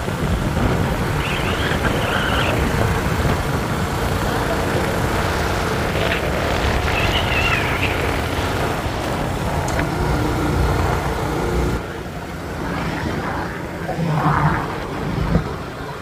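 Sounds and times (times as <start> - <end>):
motorcycle engine running: 0.0 - 12.3
wind rushing over microphone: 0.0 - 16.0.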